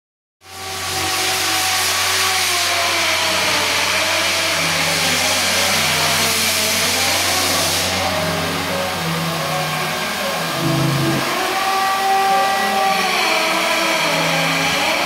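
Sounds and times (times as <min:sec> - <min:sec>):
stone cutting machine grinding: 0:00.6 - 0:15.0
machine motor tones: 0:09.2 - 0:12.0.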